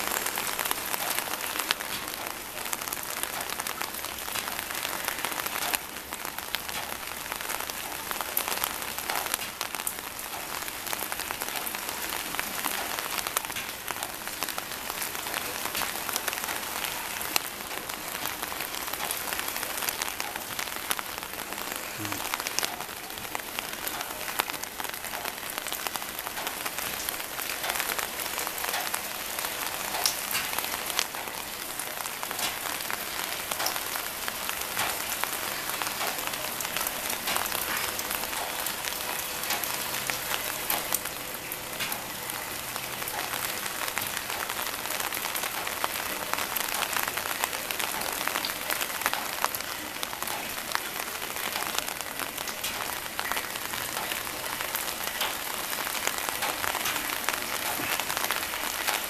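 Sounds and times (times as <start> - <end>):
rainwater splashing into tank: 0.0 - 59.0.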